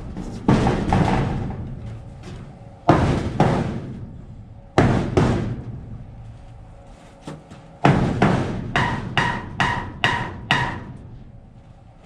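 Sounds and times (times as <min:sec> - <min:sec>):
hammer striking nails into wood: 0:07.8 - 0:10.9.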